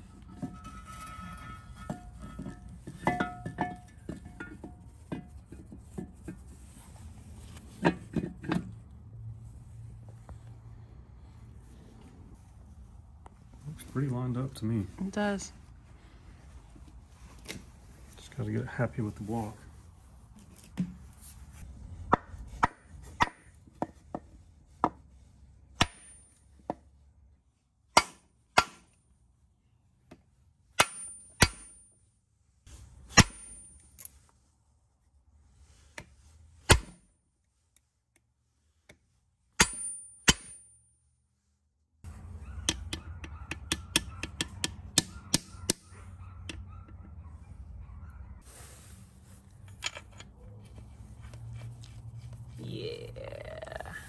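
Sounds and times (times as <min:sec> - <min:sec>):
metal tools tapping on engine block: 0:00.3 - 0:06.5.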